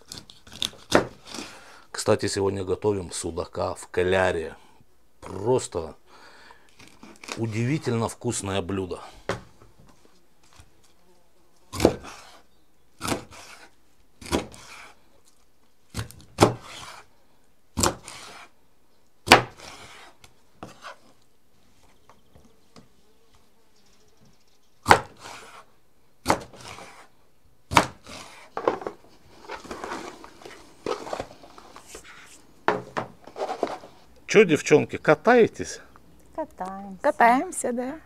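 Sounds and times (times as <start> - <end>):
cleaver chopping fish on wooden board: 11.7 - 12.3, 13.0 - 13.6, 14.2 - 14.9, 15.9 - 17.0, 17.8 - 18.4, 19.3 - 20.8, 24.8 - 25.6, 26.2 - 27.0, 27.7 - 28.4.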